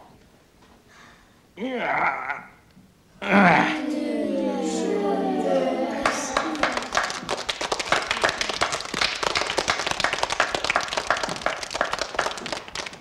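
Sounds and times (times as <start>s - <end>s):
long held vocal note: 3.2s - 7.0s
children clapping: 5.3s - 13.0s.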